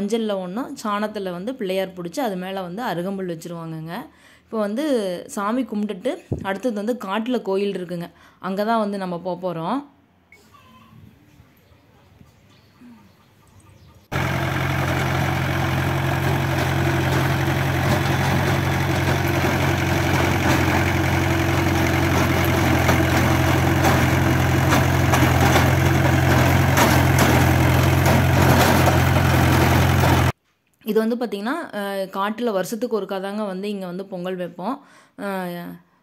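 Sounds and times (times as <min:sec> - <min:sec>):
tractor diesel engine running: 0:14.1 - 0:30.4.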